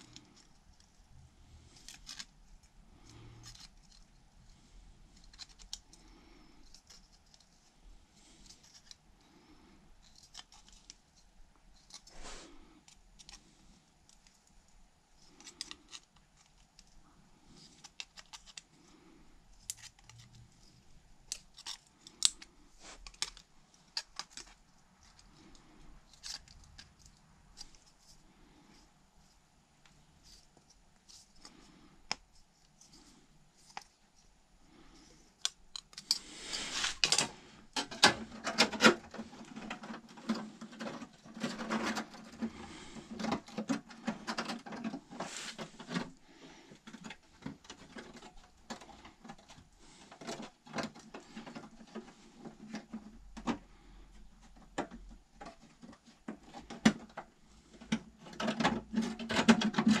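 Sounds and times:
hand tools scraping bodywork: 36.4 - 46.2.

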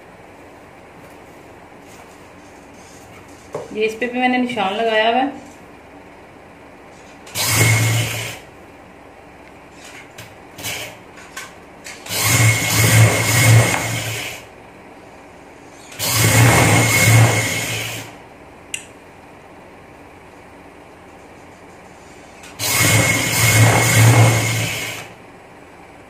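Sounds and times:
electric sewing machine stitching: 7.2 - 8.5, 10.6 - 11.0, 11.9 - 14.5, 15.8 - 18.2, 22.4 - 25.2.

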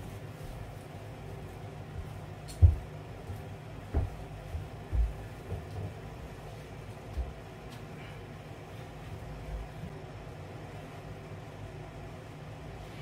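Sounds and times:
steady low hum: 0.0 - 13.0
bare footsteps on wooden floor: 1.9 - 7.5.

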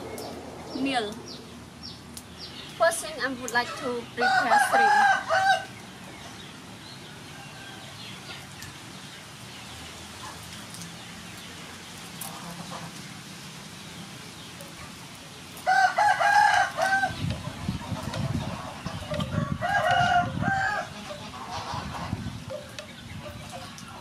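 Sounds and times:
rooster crowing: 4.2 - 5.7, 15.6 - 17.2, 19.3 - 21.0.

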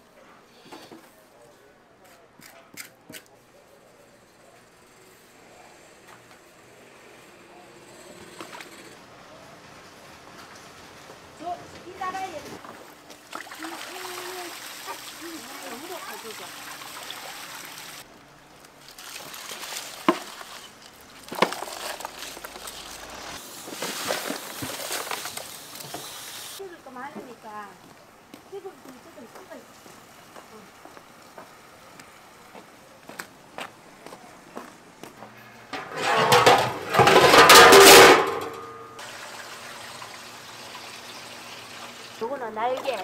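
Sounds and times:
water from hose running into pot: 13.2 - 26.6, 39.0 - 43.0
metal pot lid clattering: 35.8 - 38.9.

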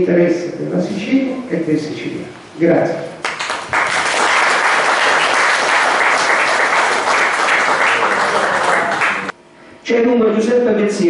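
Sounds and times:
audience applauding: 3.2 - 9.3.

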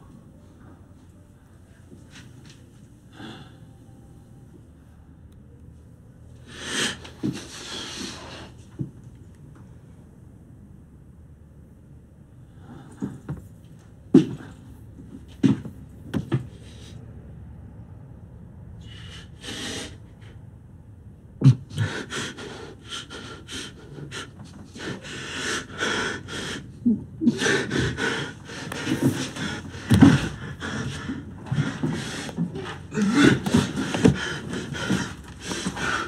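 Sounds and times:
man gasping and panting: 21.4 - 36.0.

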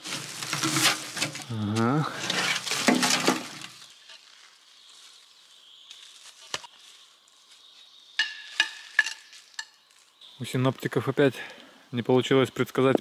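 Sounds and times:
shovel digging in soil: 0.0 - 4.2.

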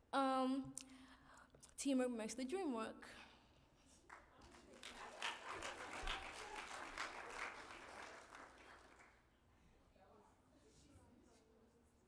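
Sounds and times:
congregation applauding: 4.1 - 9.2.

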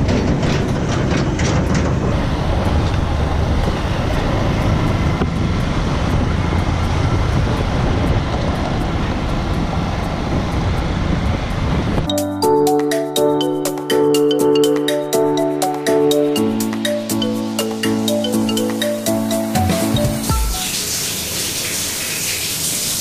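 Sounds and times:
motorbike engine rumble: 0.0 - 12.3
wind: 0.0 - 23.0.

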